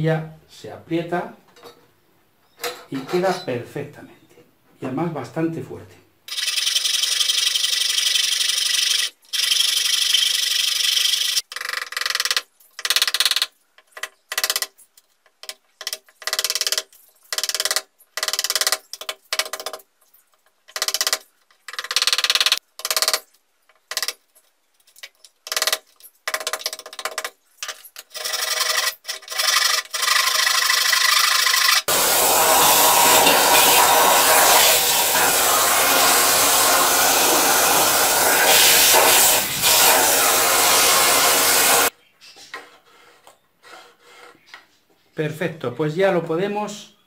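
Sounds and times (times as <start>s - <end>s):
hacksaw sawing plywood: 28.3s - 41.9s.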